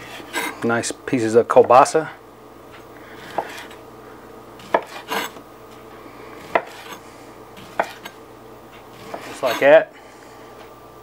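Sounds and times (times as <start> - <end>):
knife slicing sausage: 3.2 - 3.8, 4.6 - 5.4, 6.4 - 9.8.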